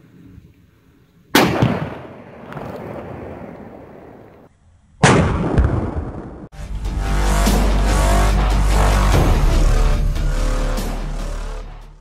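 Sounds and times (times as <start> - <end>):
firecracker bang: 1.4 - 4.2, 5.0 - 6.5.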